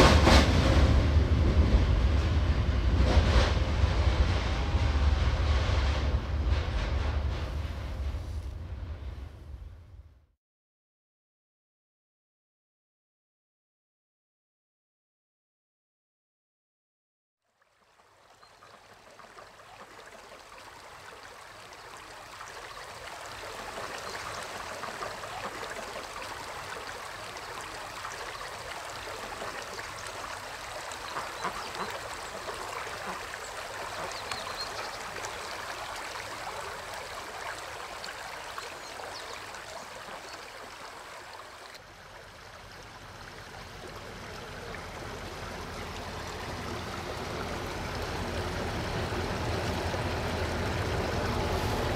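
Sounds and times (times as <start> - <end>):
low rumble: 0.0 - 10.3
creek water running: 17.4 - 51.9.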